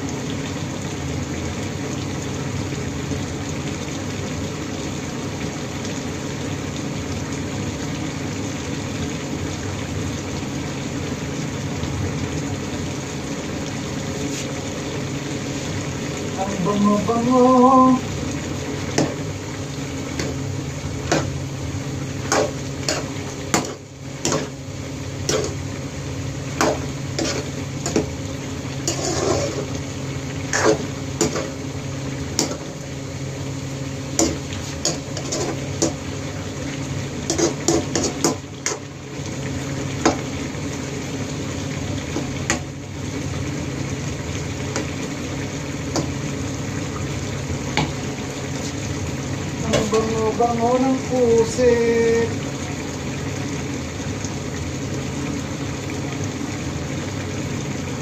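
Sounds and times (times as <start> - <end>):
sauce simmering: 0.0 - 58.0
metal spoon scraping a pan: 26.6 - 28.0, 28.8 - 29.7, 34.2 - 35.6.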